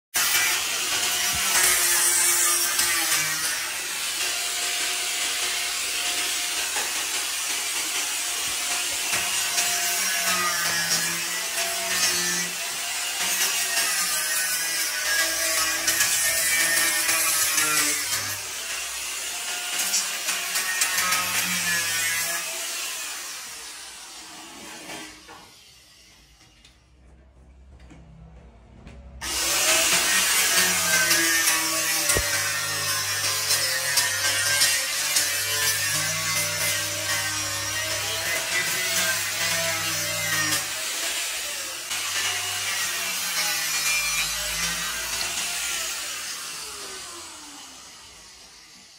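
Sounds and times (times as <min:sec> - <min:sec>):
angle grinder cutting steel: 0:00.2 - 0:26.8, 0:29.2 - 0:48.9
low hum: 0:26.4 - 0:29.2.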